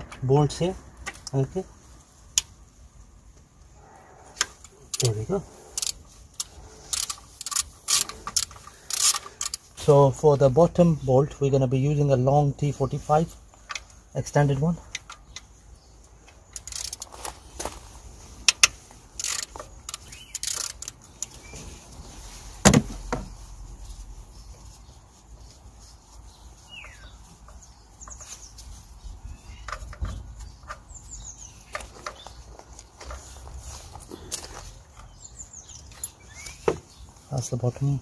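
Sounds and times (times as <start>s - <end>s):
bird chirping: 3.6s - 38.0s
metal hand tools clicking: 4.4s - 9.6s, 18.5s - 21.0s.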